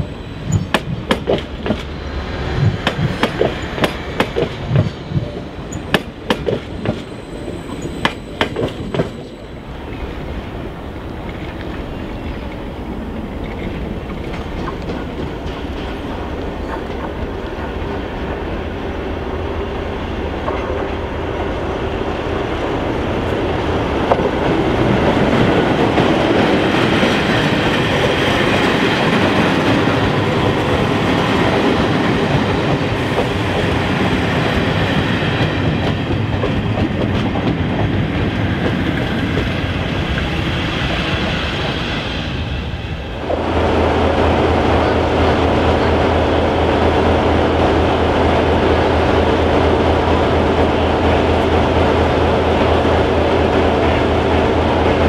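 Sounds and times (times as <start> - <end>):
train coaches clicking over rail joints: 0.4 - 7.1, 7.7 - 9.4, 13.3 - 18.4, 31.5 - 41.1.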